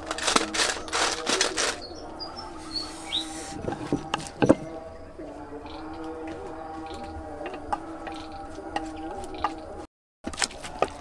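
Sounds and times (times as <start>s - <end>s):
bird chirps: 1.8s - 7.2s
wooden mortar and pestle knocking: 3.6s - 4.8s, 7.0s - 11.0s.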